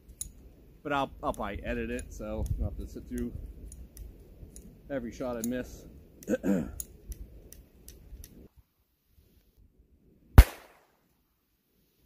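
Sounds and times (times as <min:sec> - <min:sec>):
gunshot crack: 0:10.4 - 0:10.9.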